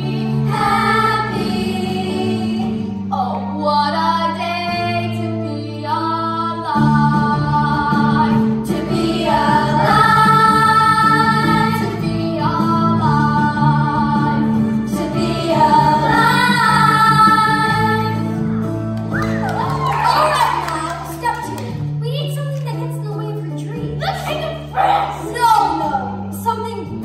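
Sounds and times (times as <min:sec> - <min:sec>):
children's chorus singing: 0:00.0 - 0:02.8, 0:06.8 - 0:18.3.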